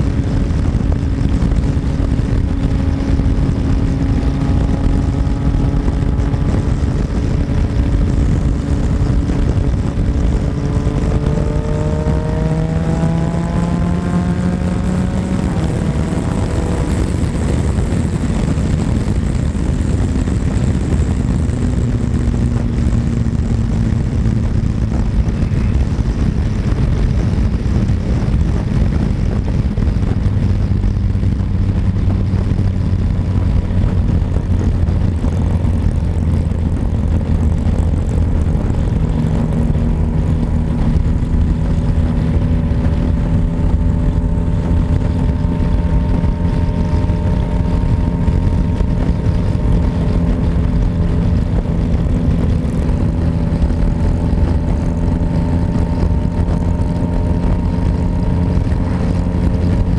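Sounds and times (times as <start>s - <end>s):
motorcycle engine accelerating: 0.0s - 59.9s
wind rush on microphone: 0.0s - 59.9s.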